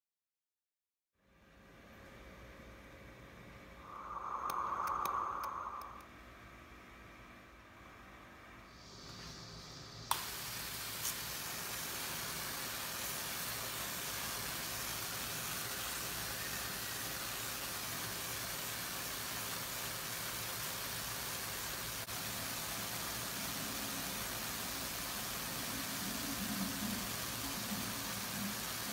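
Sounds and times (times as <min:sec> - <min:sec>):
tesla coil discharge hissing: 0:03.8 - 0:06.0.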